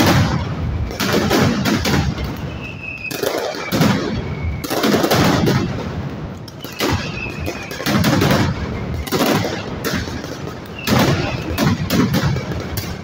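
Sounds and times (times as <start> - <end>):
firecrackers bursting: 0.0 - 13.0
high whistle: 2.4 - 4.7, 6.5 - 7.8, 10.7 - 11.6.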